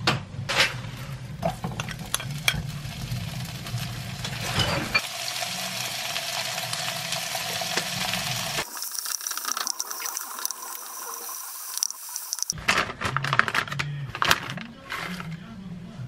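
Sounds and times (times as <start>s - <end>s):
food sizzling in frying pan: 1.4s - 12.6s.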